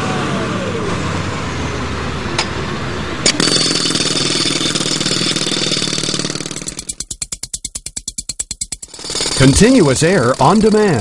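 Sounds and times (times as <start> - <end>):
diesel truck engine running: 0.0 - 6.6
jackhammer hammering: 3.2 - 11.0.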